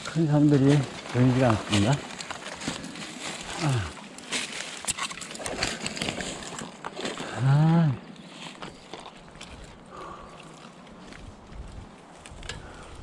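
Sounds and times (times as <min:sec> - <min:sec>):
footsteps through dry leaves: 0:00.1 - 0:09.9.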